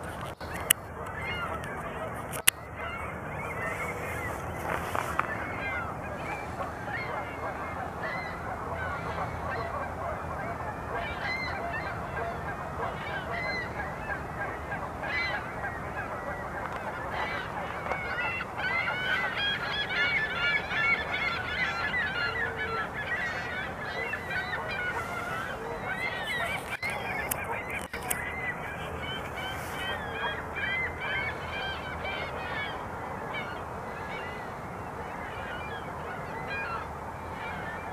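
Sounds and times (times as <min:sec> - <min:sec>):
geese honking: 0:00.0 - 0:37.9.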